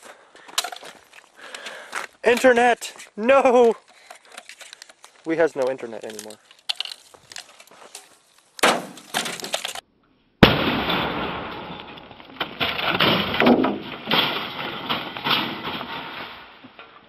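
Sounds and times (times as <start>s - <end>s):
rustling: 0.0s - 9.8s
debris clattering and shattering: 6.0s - 7.8s, 8.6s - 9.8s, 10.4s - 17.0s
sharp bang: 10.4s - 12.0s.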